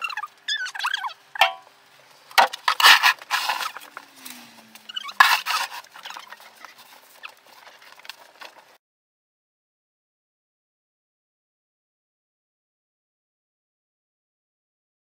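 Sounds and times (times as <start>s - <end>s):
snow shovel scraping pavement: 2.6s - 8.6s.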